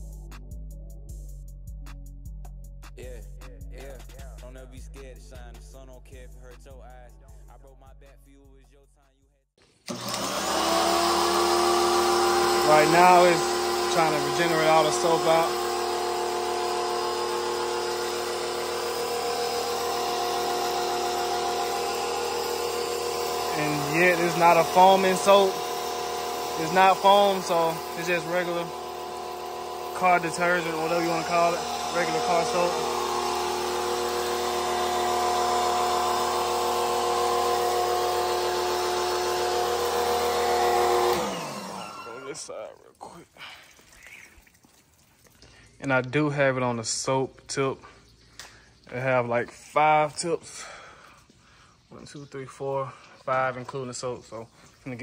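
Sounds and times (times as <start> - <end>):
pressure washer motor whine: 9.6 - 42.8
water spray hissing: 12.4 - 37.7, 42.2 - 45.5
water spraying hiss: 42.4 - 45.4.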